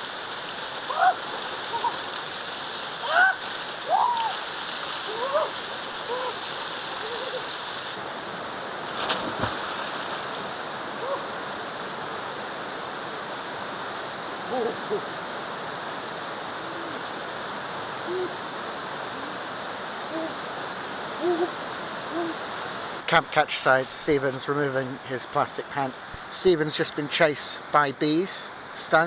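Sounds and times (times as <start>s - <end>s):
river and waterfall rushing: 0.0s - 27.8s
knock or splash: 8.9s - 10.4s.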